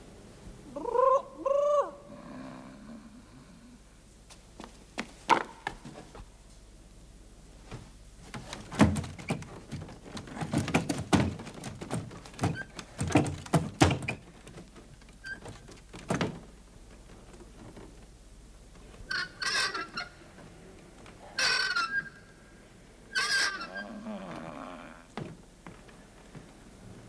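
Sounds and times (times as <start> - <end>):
knocks and thuds: 7.7 - 16.5.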